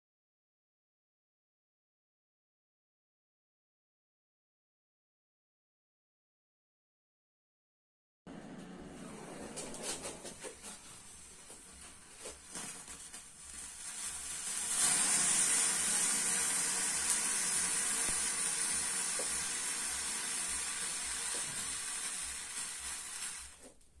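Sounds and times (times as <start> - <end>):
faint crackles: 8.6 - 24.0
thermite burning hiss: 10.4 - 23.8.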